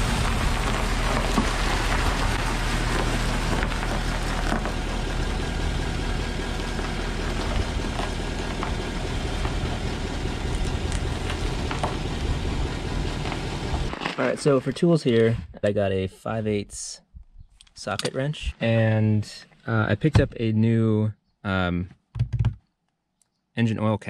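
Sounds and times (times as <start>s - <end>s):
pickup truck engine running: 0.0s - 14.1s
tyres crunching over gravel: 0.0s - 15.4s.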